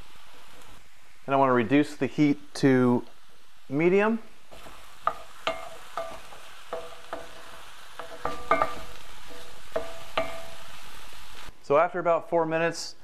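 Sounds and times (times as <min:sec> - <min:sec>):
mushrooms sizzling in a skillet: 0:00.0 - 0:13.0
wooden spoon knocking a pan: 0:04.5 - 0:10.6.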